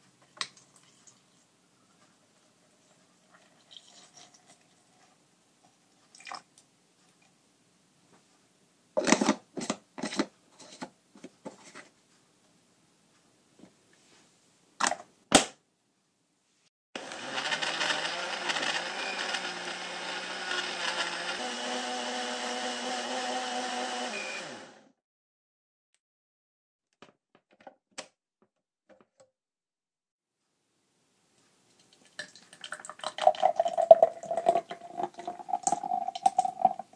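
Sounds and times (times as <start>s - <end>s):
blender crushing ice: 17.0s - 24.9s.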